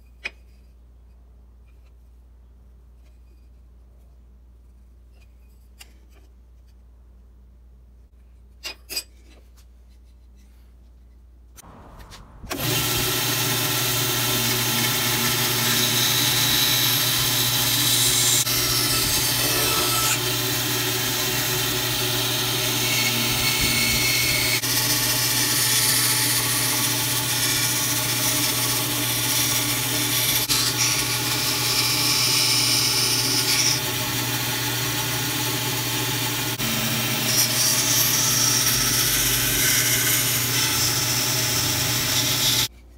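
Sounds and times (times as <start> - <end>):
band saw cutting wood: 11.6 - 42.7.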